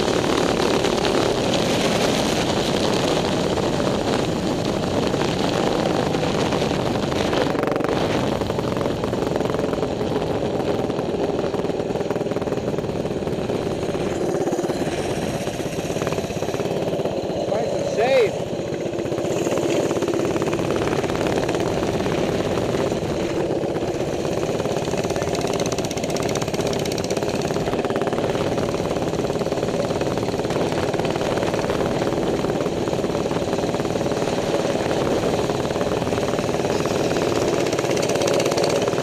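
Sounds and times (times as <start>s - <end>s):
small motorbike engine running: 0.0s - 39.0s.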